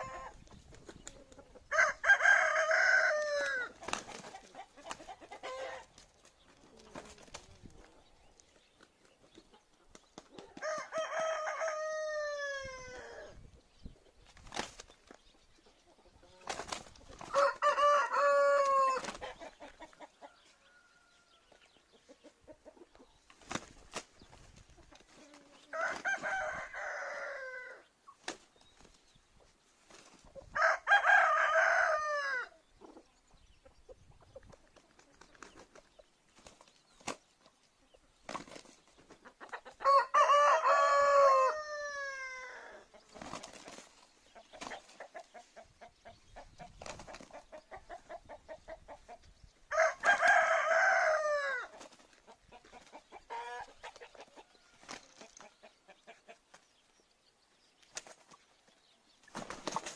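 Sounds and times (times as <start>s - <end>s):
rooster crowing: 1.7s - 3.7s, 10.6s - 13.3s, 17.3s - 19.0s, 25.7s - 27.8s, 30.6s - 32.5s, 39.8s - 42.8s, 49.7s - 51.7s.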